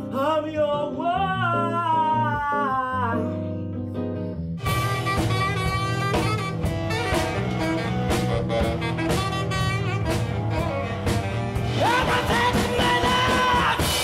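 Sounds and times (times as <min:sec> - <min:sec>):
drum kit beat: 0:04.6 - 0:14.0
saxophone: 0:04.6 - 0:14.0.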